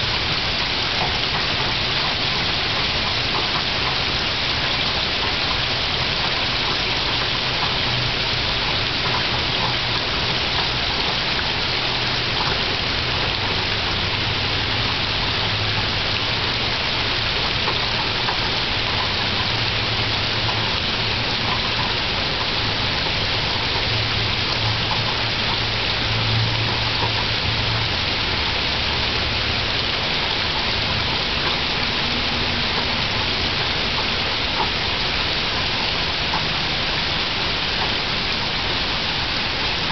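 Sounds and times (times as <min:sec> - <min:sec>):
rain falling on leaves: 0:00.0 - 0:39.9.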